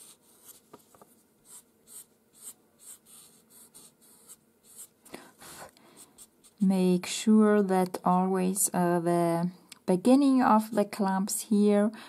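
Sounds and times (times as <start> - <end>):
pencil scratching on paper: 0.0 - 0.8, 1.4 - 6.7.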